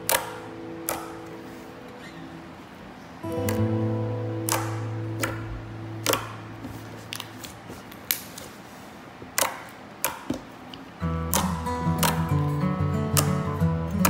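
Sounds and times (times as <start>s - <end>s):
guitar music: 0.0s - 7.9s, 11.0s - 14.0s.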